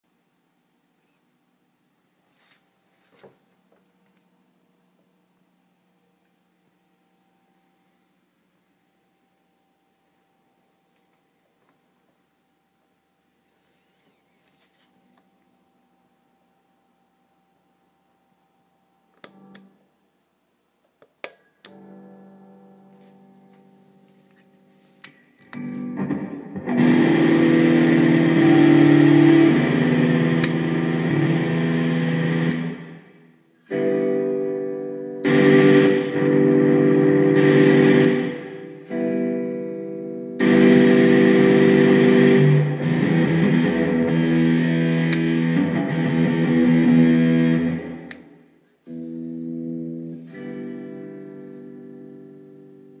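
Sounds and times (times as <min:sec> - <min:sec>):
distorted electric guitar chords: 0:21.7 - 0:24.4, 0:25.4 - 0:53.0.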